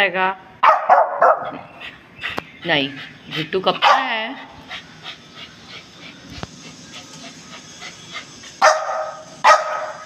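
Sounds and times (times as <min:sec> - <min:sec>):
small dog barking: 0:00.6 - 0:01.6, 0:03.8 - 0:04.1, 0:08.6 - 0:10.0.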